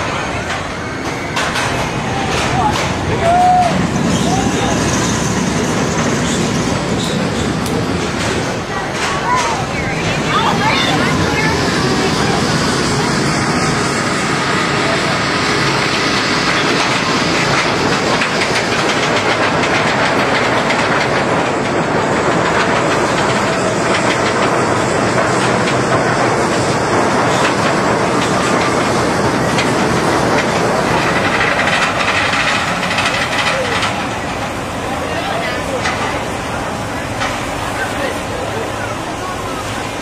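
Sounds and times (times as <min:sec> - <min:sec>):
roller coaster wheel rush: 0:00.0 - 0:40.0
fast rattling clicks: 0:16.6 - 0:34.4.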